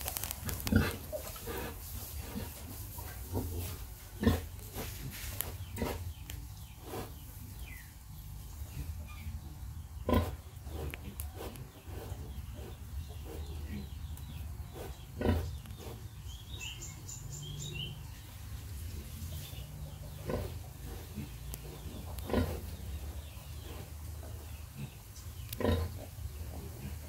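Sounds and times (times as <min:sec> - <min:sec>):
pigs calling: 0:14.7 - 0:16.1.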